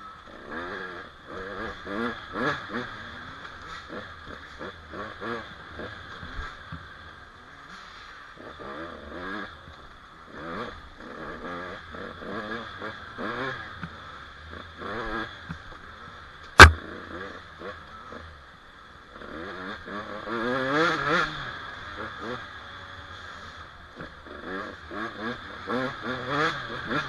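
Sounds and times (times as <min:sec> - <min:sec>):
sharp loud knock: 0:16.6 - 0:16.8.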